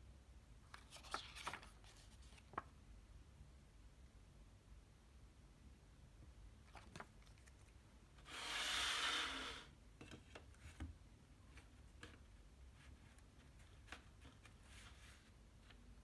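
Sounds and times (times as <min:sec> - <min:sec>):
paper sliding across a surface: 0:08.2 - 0:09.7, 0:14.6 - 0:15.4.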